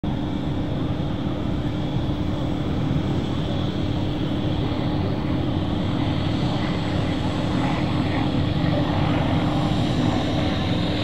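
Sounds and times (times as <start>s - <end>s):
propeller plane engine drone: 0.0s - 11.0s.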